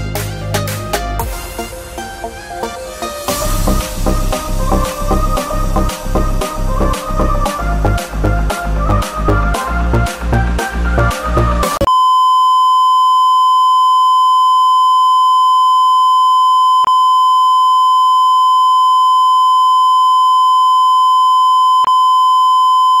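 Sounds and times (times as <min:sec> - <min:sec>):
electronic music with beat: 0:00.0 - 0:11.9
steady electronic beep tone: 0:11.8 - 0:23.0.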